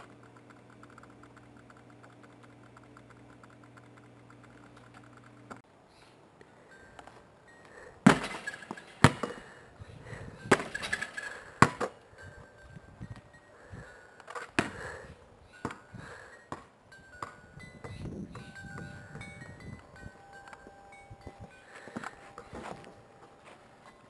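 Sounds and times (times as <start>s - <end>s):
basketball hitting backboard and rim: 8.0s - 9.4s, 10.5s - 11.9s, 14.6s - 14.8s
basketball bouncing on concrete: 8.1s - 9.4s, 11.6s - 11.9s, 16.5s - 18.0s.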